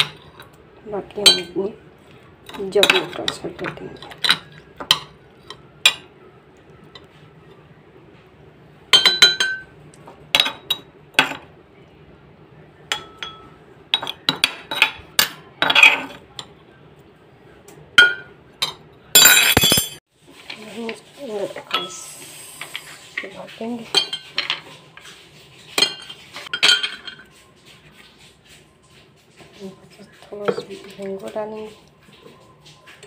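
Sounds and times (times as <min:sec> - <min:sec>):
metal spoon clinking on mortar: 0:01.2 - 0:01.6, 0:08.9 - 0:09.7, 0:12.9 - 0:16.5, 0:18.0 - 0:20.0.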